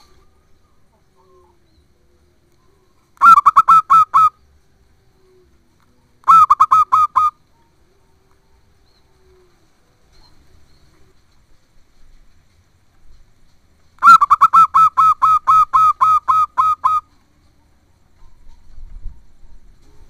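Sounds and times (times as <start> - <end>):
dove cooing: 0.0 - 1.7, 2.7 - 4.4, 5.0 - 11.2, 14.0 - 17.1.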